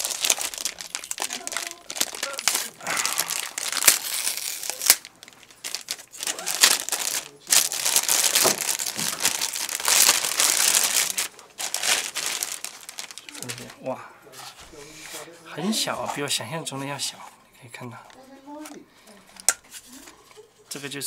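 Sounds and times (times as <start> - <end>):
plastic bag crinkling: 0.0 - 13.8.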